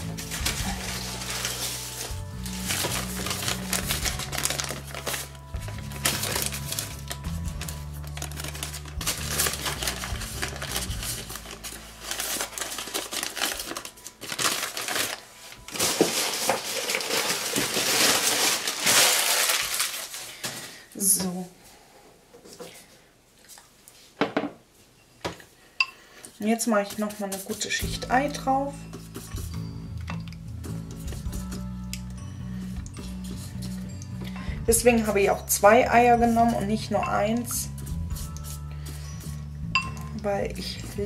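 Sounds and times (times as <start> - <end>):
soft background music: 0.0 - 20.2, 25.8 - 41.0
pastry sheets crinkling: 0.0 - 20.7.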